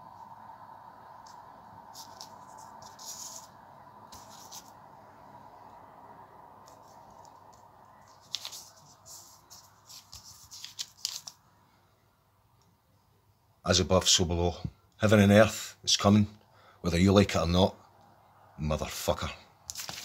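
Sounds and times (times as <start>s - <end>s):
faint steady hum: 0.0s - 20.0s
paper crinkling and rustling: 1.9s - 4.8s, 6.6s - 11.4s, 19.7s - 20.0s.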